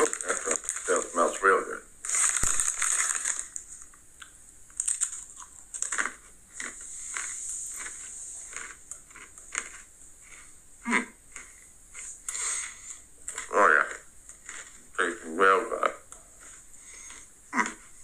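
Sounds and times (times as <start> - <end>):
crunchy snacks being chewed: 0.0 - 1.4, 2.0 - 3.9, 4.7 - 15.3, 16.4 - 18.0
snack bag crinkling: 0.0 - 4.0, 4.7 - 10.5, 14.3 - 14.9.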